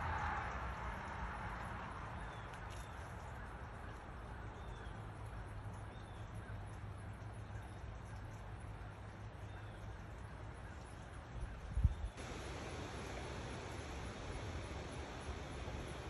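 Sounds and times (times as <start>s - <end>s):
low outdoor rumble: 12.1s - 16.0s.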